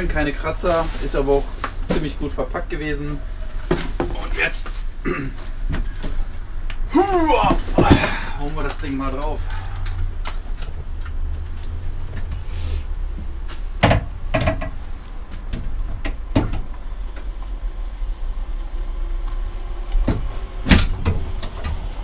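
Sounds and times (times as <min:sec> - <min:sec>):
low steady rumble: 0:00.0 - 0:22.0
metal seat clunking and knocking: 0:07.4 - 0:08.4, 0:13.1 - 0:16.8, 0:20.0 - 0:22.0.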